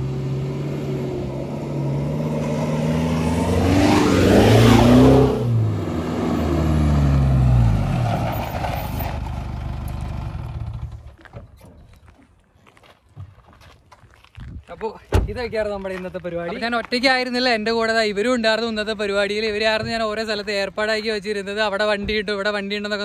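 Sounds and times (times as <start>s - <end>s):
pickup truck driving past: 0.0s - 11.0s.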